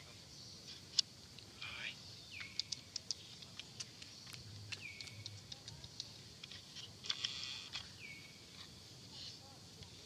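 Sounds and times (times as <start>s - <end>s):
short high chirps and ticks: 2.3s - 6.2s.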